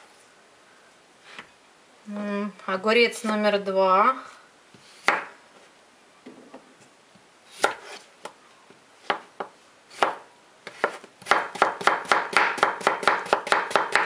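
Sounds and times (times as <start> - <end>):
knife chopping on cutting board: 5.0 - 5.3, 9.0 - 14.0.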